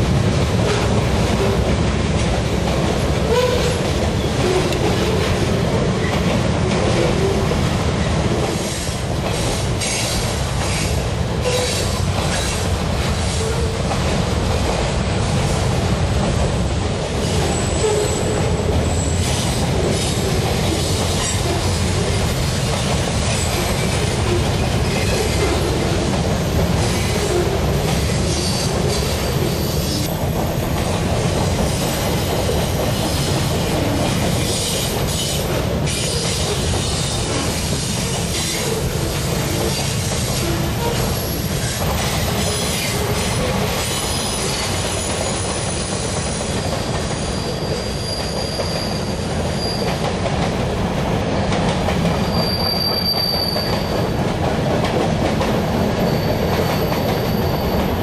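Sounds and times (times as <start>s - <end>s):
freight train wheels rumbling: 0.0s - 58.0s
wheel flange squeal: 47.2s - 50.0s, 52.2s - 54.0s.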